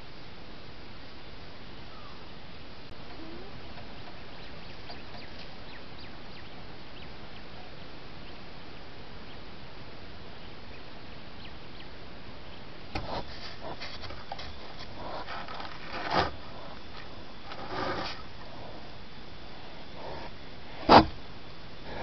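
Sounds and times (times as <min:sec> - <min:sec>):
microphone hiss: 0:00.0 - 0:22.0
faint bird chirps: 0:01.8 - 0:09.5, 0:10.3 - 0:12.7
animal sniffing and scraping: 0:13.0 - 0:21.2.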